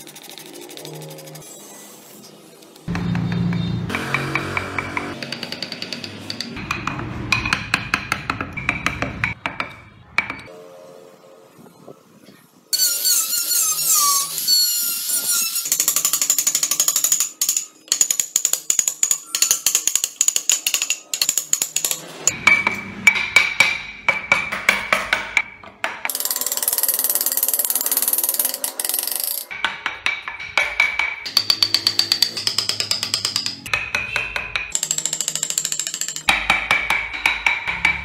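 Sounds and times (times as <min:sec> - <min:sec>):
tool clicking on wood: 0:02.9 - 0:09.4, 0:15.7 - 0:22.4, 0:23.4 - 0:38.0.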